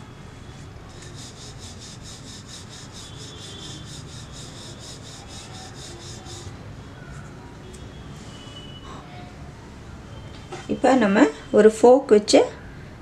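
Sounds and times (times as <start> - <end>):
rolling pin rubbing over dough: 0.6 - 6.5.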